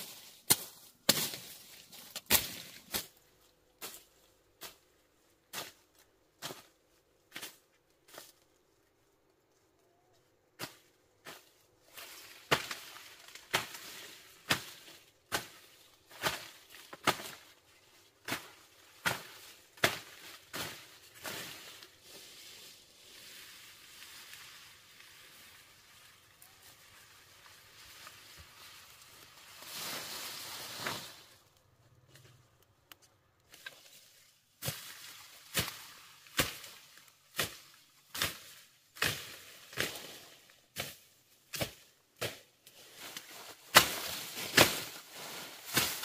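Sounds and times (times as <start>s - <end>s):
machete chopping brush: 0.0s - 3.2s, 12.4s - 17.5s, 18.2s - 21.8s, 34.6s - 42.5s, 43.1s - 46.0s
leaves rustling: 0.0s - 6.8s, 10.6s - 32.4s, 33.4s - 46.0s.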